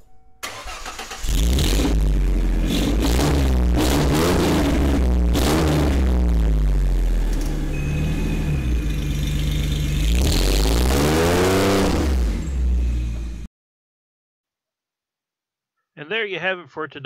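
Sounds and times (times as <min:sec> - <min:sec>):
car engine idling and revving: 0:00.4 - 0:13.5.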